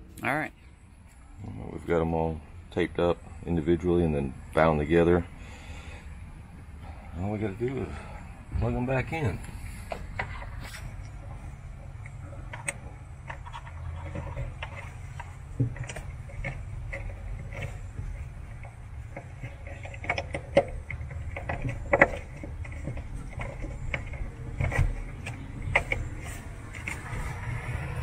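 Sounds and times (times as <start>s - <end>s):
low hum: 0.0s - 28.0s.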